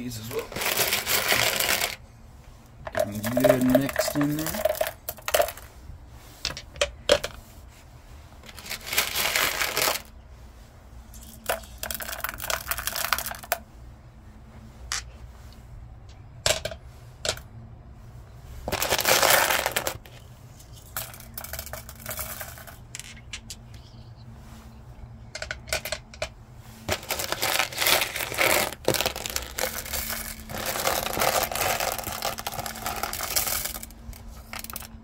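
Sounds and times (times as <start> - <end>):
stones clicking and rattling: 0.3 - 2.0, 2.8 - 5.7, 8.4 - 10.2, 11.1 - 13.6, 18.7 - 23.9, 25.3 - 35.0.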